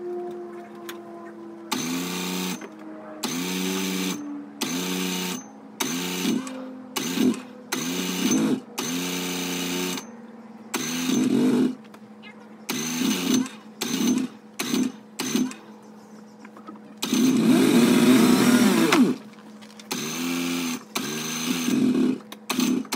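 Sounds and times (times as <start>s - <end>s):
snowmobile engine cranking: 1.7s - 10.1s, 10.8s - 11.8s, 12.7s - 15.6s, 17.0s - 22.9s.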